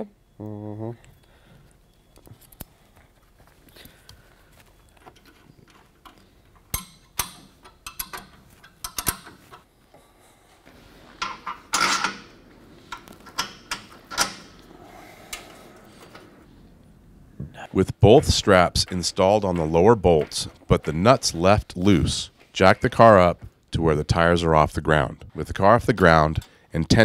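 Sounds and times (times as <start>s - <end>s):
metal tools clinking: 4.8s - 9.6s, 11.1s - 14.6s.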